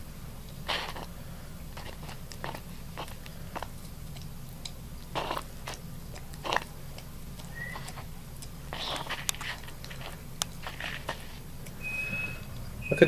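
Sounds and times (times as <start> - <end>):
iguana crunching food: 0.3 - 12.8.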